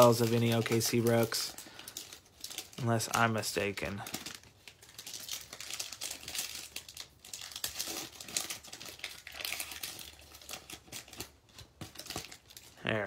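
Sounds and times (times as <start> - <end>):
foil wrappers crinkling: 0.0 - 13.0.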